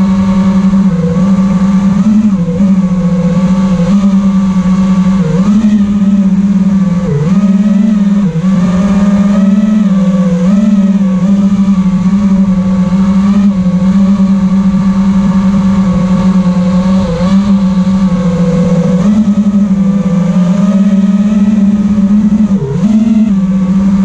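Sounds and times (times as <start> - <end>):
quadcopter propellers buzzing: 0.0 - 24.0.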